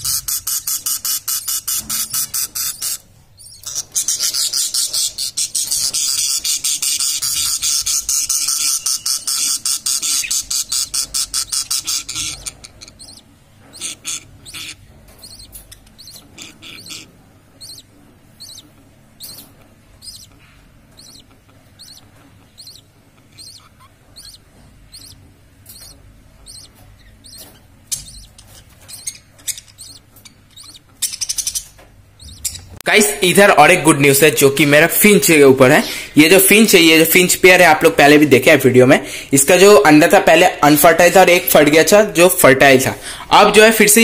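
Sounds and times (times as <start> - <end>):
budgerigar chicks chirping: 0.0 - 44.0.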